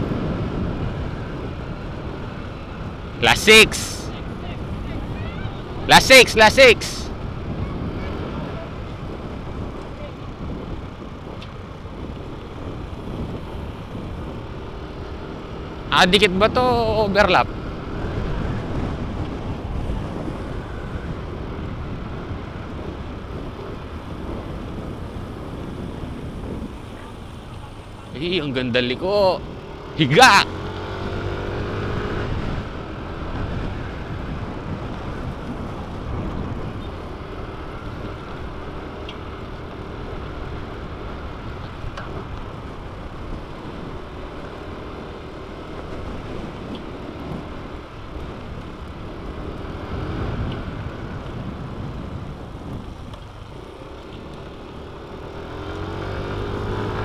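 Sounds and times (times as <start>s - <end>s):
wind noise on microphone: 0.0s - 57.0s
motorcycle engine running: 6.8s - 57.0s.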